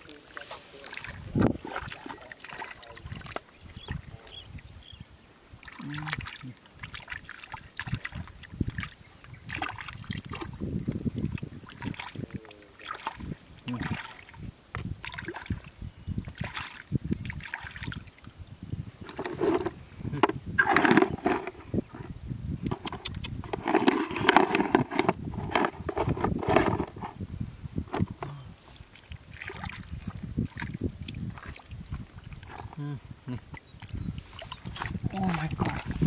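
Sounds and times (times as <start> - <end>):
hands squelching through mud: 0.2 - 3.4.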